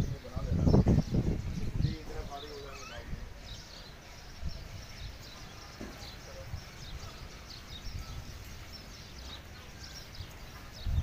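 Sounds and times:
low rumble on microphone: 0:00.0 - 0:02.4
faint bird chirps: 0:00.0 - 0:11.0.

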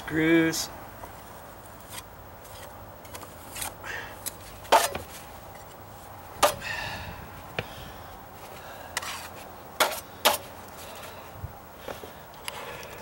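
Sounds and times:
putty knife scraping: 0:01.8 - 0:05.7, 0:09.0 - 0:10.5.

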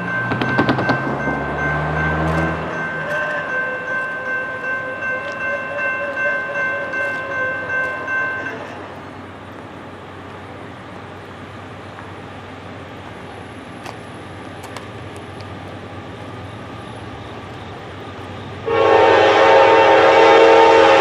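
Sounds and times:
locomotive air horn chord: 0:18.6 - 0:21.0.

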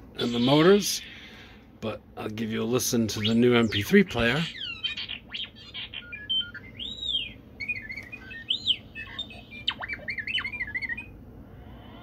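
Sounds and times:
electronic warning chirps and beeps: 0:03.2 - 0:11.2.

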